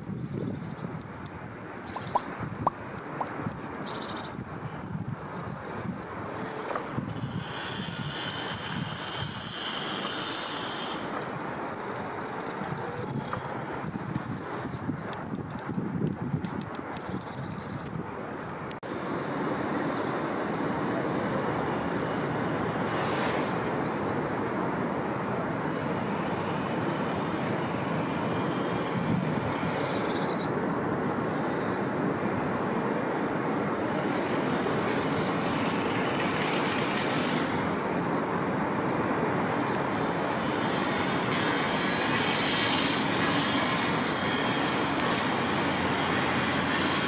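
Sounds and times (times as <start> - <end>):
train wheels rumbling on rails: 3.3 - 16.9, 33.6 - 47.0
high wheel squeal: 6.4 - 11.5, 39.2 - 47.0.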